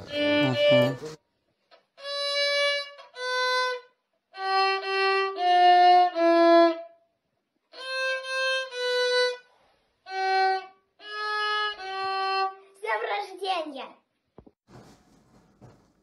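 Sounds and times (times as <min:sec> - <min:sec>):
solo violin melody: 0:00.0 - 0:01.2, 0:02.0 - 0:07.0, 0:07.7 - 0:12.7.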